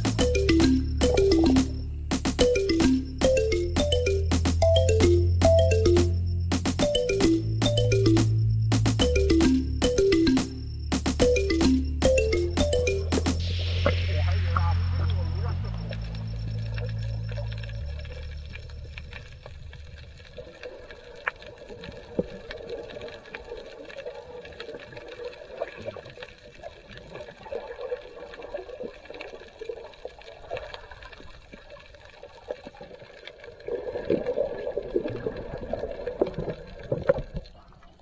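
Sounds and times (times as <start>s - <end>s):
muffled underwater water wash: 12.7s - 38.0s
underwater clicks and crackles: 15.0s - 38.0s.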